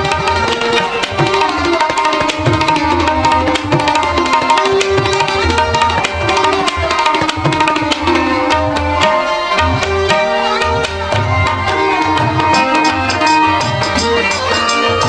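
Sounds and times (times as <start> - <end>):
tabla playing: 0.0 - 15.0.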